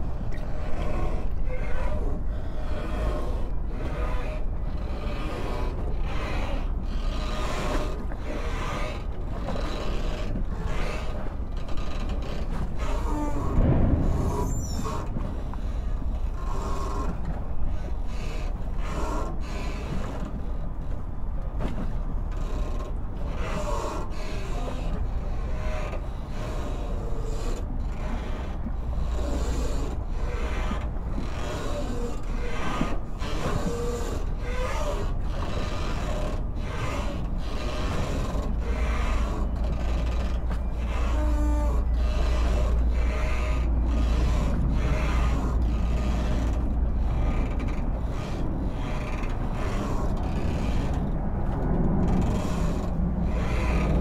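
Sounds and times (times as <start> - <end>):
creaks and squeaks of moving parts: 0.0 - 54.0
steady low rumble: 12.7 - 19.2, 26.1 - 54.0.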